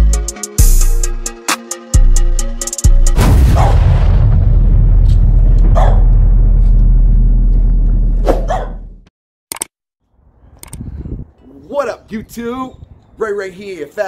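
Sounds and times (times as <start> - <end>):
loud deep rumble: 3.2 - 9.1
dog barking: 5.8 - 6.0, 8.3 - 8.8
short clicks: 9.5 - 9.7, 10.6 - 10.8.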